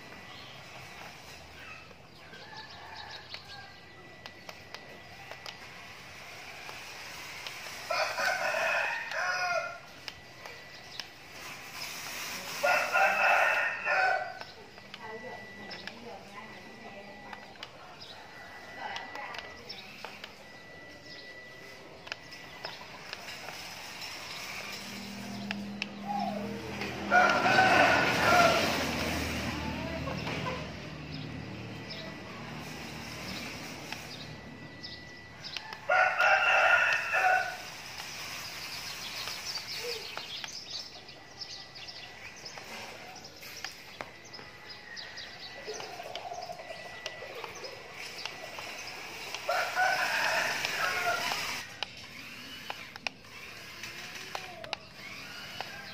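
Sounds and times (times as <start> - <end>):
faint high whine: 0.0 - 55.9
rooster crowing: 2.2 - 3.9, 7.8 - 9.9, 12.4 - 14.4, 24.7 - 30.8, 35.6 - 37.8, 49.5 - 52.2.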